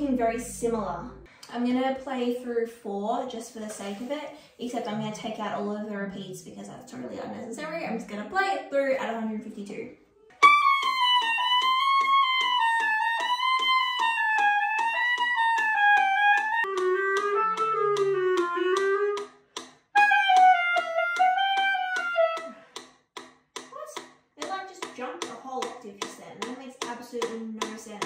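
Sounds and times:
clarinet playing quick runs: 10.4 - 19.3, 20.0 - 22.6
metronome clicking: 10.4 - 22.8.

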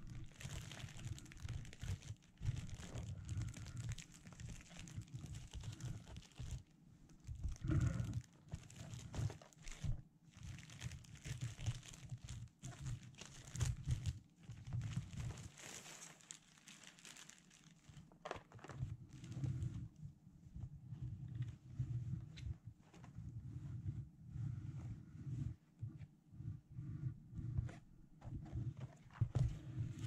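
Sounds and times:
plastic mailer bag crinkling: 0.0 - 6.7, 7.5 - 19.3.

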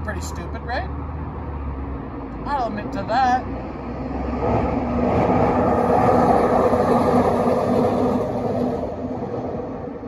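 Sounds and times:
vehicle passing by: 0.1 - 9.9.

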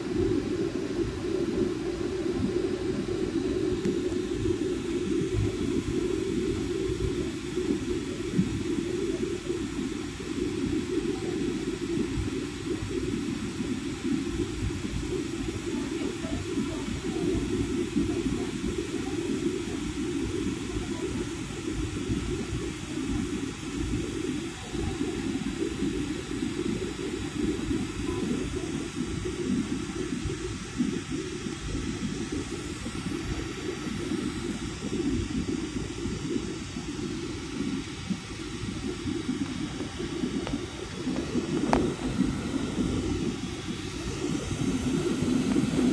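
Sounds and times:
jet cabin engine rumble: 0.0 - 45.9
airliner cabin engine drone: 24.0 - 45.9.

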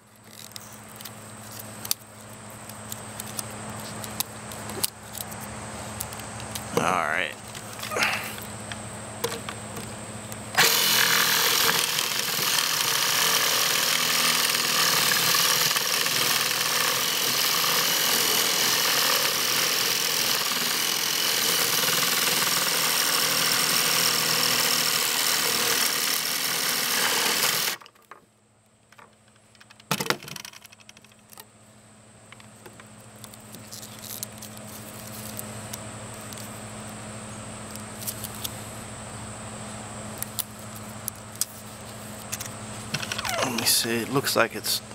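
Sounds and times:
jigsaw cutting plastic tube: 10.6 - 27.9.

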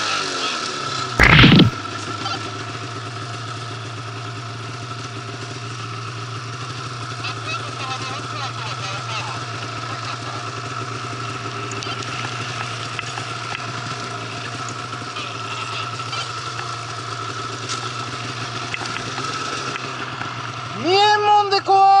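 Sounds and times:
high whine: 1.2 - 1.8
snowmobile engine droning: 6.7 - 22.0.

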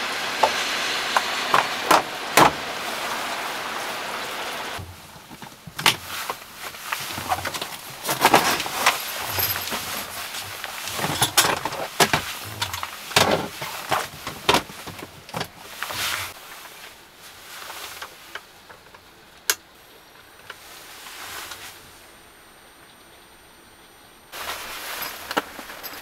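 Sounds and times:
drawer boxes knocking and clacking: 4.8 - 6.1, 7.0 - 16.3.

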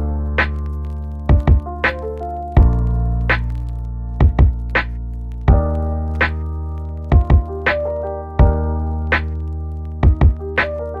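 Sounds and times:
synth and keyboard chords: 0.0 - 11.0
kick drum thumps: 1.3 - 1.7, 2.6 - 2.8, 4.2 - 4.6, 7.1 - 7.5, 8.4 - 8.6, 10.0 - 10.4.

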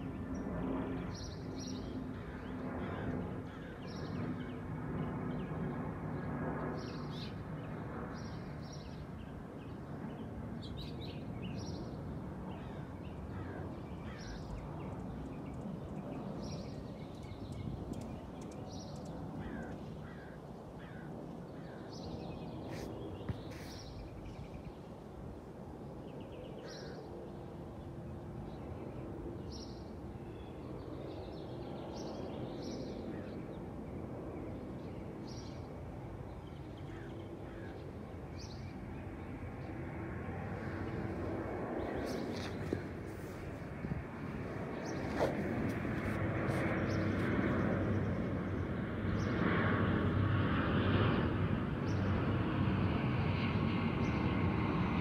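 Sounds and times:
distant city traffic rumble: 0.0 - 55.0
low engine drone: 36.9 - 55.0.

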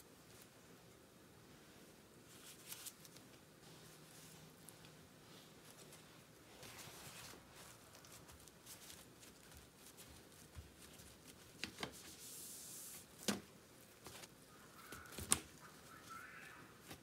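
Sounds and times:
damp paper towels rustling: 1.6 - 17.0.

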